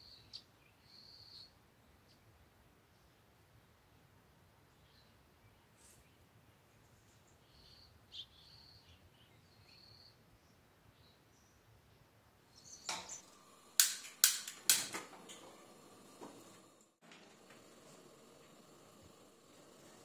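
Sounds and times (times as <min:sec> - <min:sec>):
gas lighter clicking: 0:12.9 - 0:16.7.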